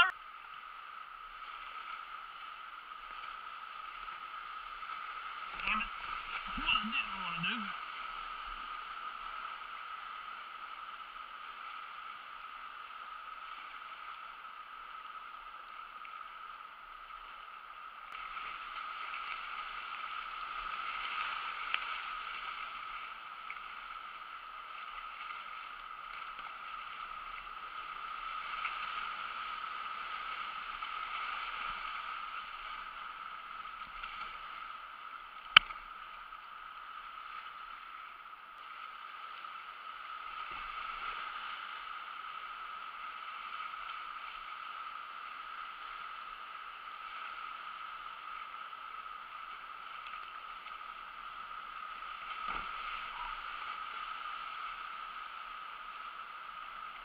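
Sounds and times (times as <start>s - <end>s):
river rapids rushing: 5.4s - 8.3s.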